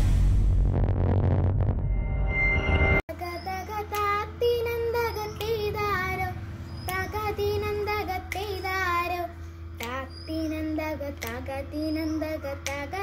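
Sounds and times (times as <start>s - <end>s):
girl singing: 3.1s - 13.0s
low background hum: 3.1s - 13.0s.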